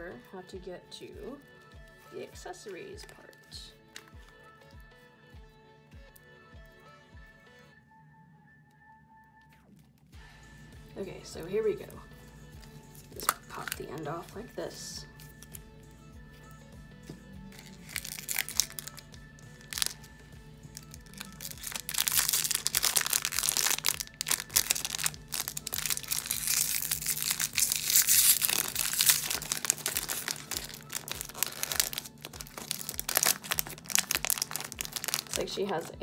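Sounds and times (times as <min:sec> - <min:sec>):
foil wrapping crinkling: 0:17.5 - 0:20.1, 0:20.7 - 0:35.8.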